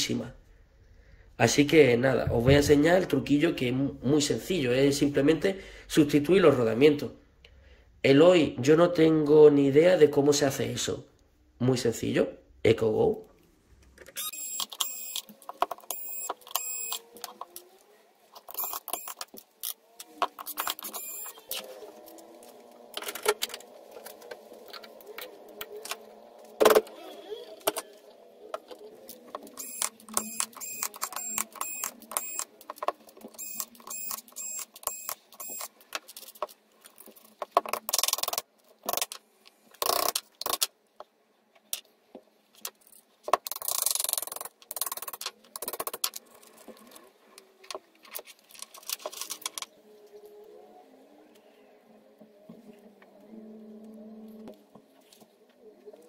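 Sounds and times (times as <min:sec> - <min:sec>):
cordless screwdriver whirring: 0:20.4 - 0:21.6, 0:29.4 - 0:32.5.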